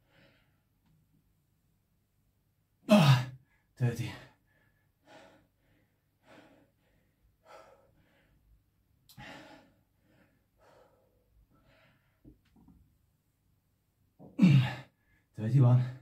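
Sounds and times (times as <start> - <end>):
man breathing hard: 4.4 - 12.3.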